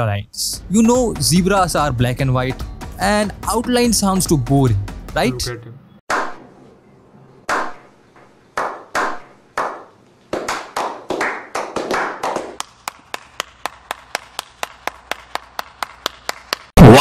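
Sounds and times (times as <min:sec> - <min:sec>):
hand claps: 0:08.6 - 0:16.8.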